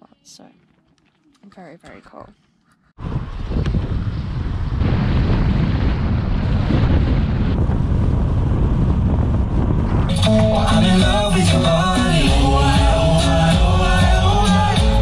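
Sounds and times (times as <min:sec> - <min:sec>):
wind buffeting microphone: 0:03.0 - 0:10.2
music: 0:10.1 - 0:15.0.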